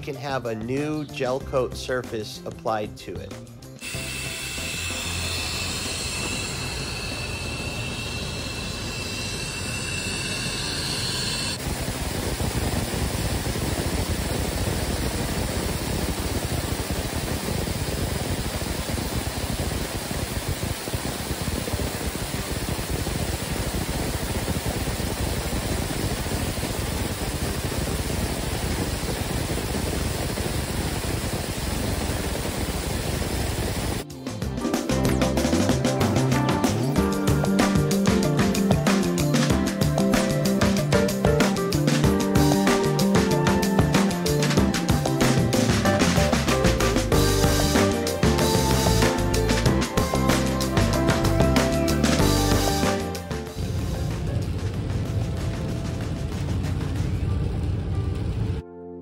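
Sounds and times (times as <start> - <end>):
hum with high whine: 3.8 - 34.1, 42.4 - 58.7
sandblasting hiss: 3.8 - 34.1, 37.3 - 54.3.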